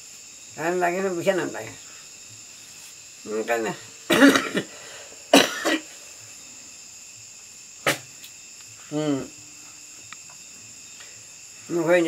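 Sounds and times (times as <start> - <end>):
insect trilling: 0.0 - 12.0
man coughing: 4.1 - 4.7, 5.3 - 5.9.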